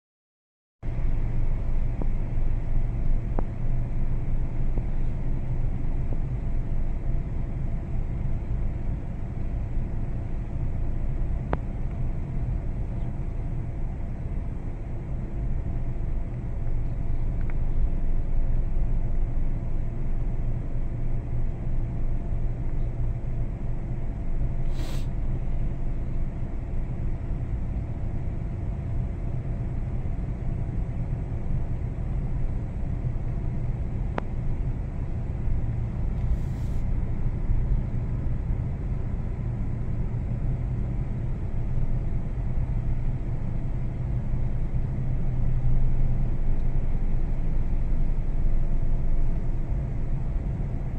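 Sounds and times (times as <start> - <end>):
vehicle engine and road noise: 0.8 - 50.9.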